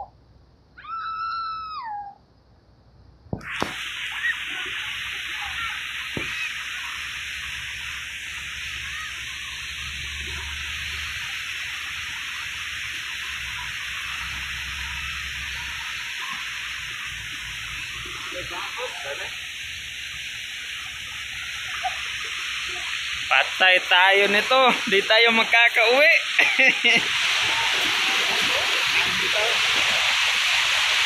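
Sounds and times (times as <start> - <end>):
fast-flowing river rushing: 26.9 - 31.0.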